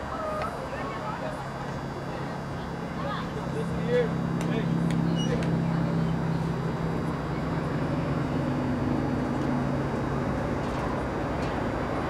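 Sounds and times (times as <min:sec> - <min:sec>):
low machine hum: 0:00.0 - 0:12.0
outdoor background noise: 0:00.0 - 0:12.0.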